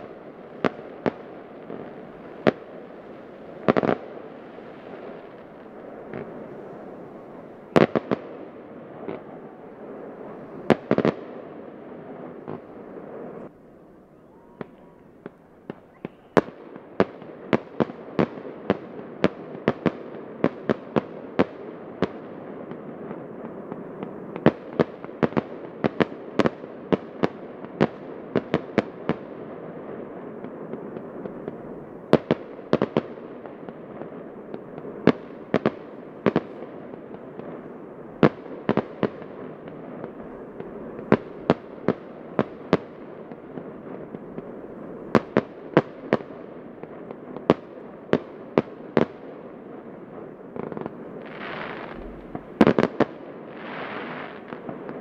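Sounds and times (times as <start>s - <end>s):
fireworks bangs: 0.0s - 13.5s, 14.2s - 21.1s, 29.9s - 49.2s, 50.5s - 55.0s
steady background noise: 51.7s - 52.8s.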